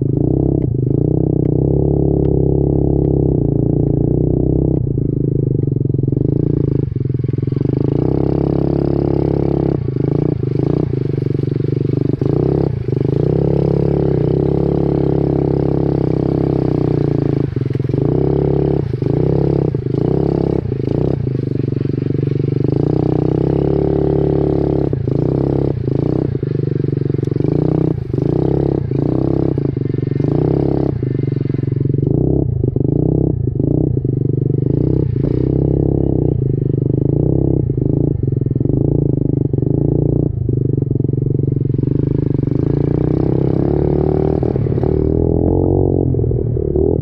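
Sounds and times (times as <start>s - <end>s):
minibike engine revving: 0.0s - 47.0s.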